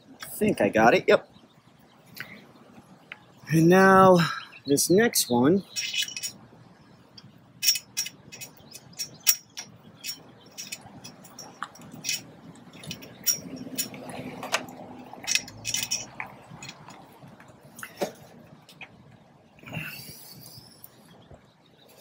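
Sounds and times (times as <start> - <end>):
small metal clicks and clinks: 5.7 - 6.4, 7.2 - 17.0.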